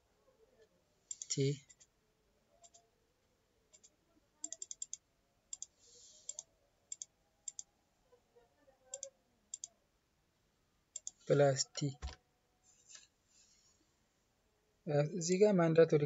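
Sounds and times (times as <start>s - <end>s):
keyboard and mouse clicks: 2.6s - 2.8s, 3.7s - 7.7s, 8.9s - 9.7s, 11.0s - 11.2s, 11.8s - 12.2s
soft hiss: 11.0s - 15.3s.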